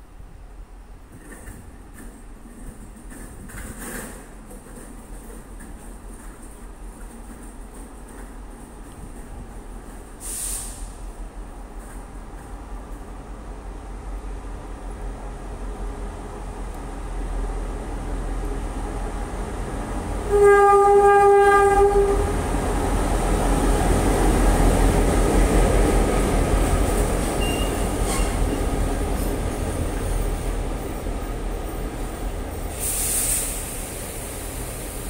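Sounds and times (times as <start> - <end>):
train rumbling past: 0.0 - 35.0
short hiss: 10.2 - 11.2, 32.7 - 35.0
locomotive horn blast: 20.2 - 22.4.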